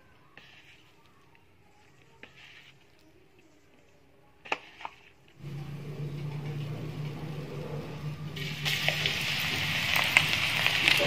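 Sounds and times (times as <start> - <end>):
steady low hum: 5.4 - 9.8
food sizzling in hot oil: 8.4 - 11.0.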